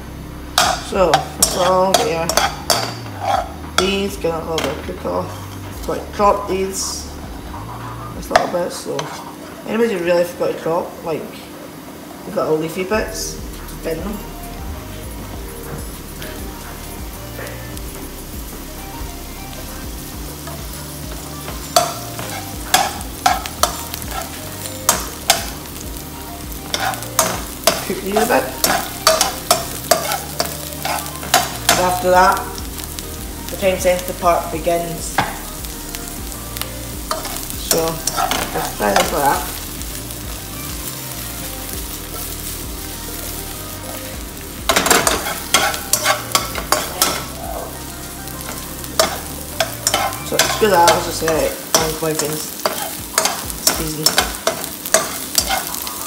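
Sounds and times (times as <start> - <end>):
onions sizzling in oil: 0.0 - 56.0
metal turner scraping a wok: 0.6 - 6.0, 6.8 - 9.5, 21.4 - 25.8, 26.6 - 32.9, 37.1 - 39.4, 44.6 - 47.7, 48.4 - 56.0.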